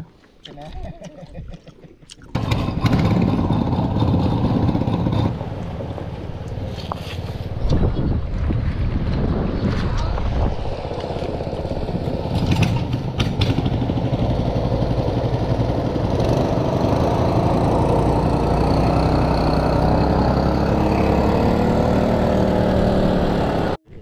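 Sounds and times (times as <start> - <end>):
small boat engine running: 2.4 - 7.6, 10.5 - 23.8.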